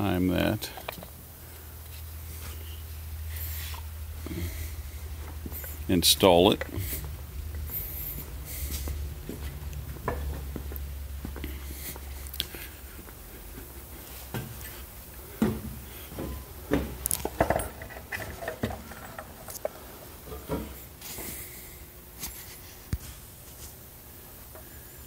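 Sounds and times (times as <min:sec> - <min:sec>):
metal parts clinking and knocking: 0:17.1 - 0:19.8.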